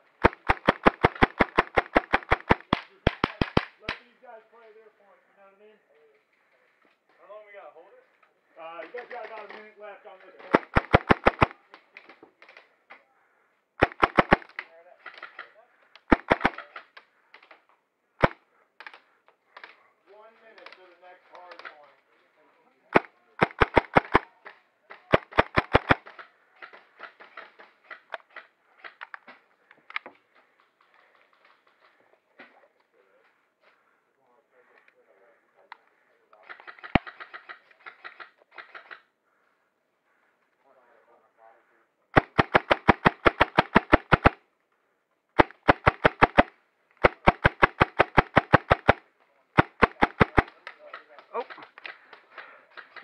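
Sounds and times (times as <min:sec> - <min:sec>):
airsoft gun shots: 0:00.2 - 0:03.7, 0:13.8 - 0:14.5, 0:16.1 - 0:16.7, 0:23.0 - 0:24.2, 0:25.1 - 0:26.1, 0:42.2 - 0:44.4, 0:45.4 - 0:49.0, 0:49.6 - 0:50.5.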